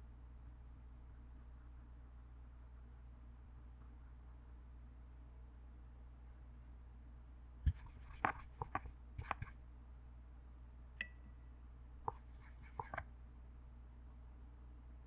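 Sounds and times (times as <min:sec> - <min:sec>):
paintbrush tapping palette: 0:07.7 - 0:09.6, 0:12.0 - 0:13.0.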